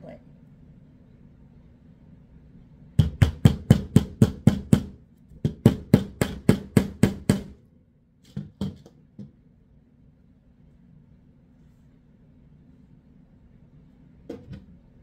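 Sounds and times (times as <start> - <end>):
hammer tapping nails into wood: 3.0 - 7.6.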